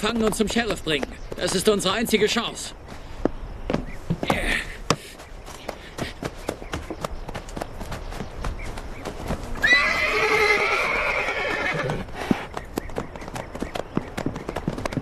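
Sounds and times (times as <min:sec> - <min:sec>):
hooves clattering: 0:00.0 - 0:15.0
horse whinnying: 0:09.6 - 0:12.5.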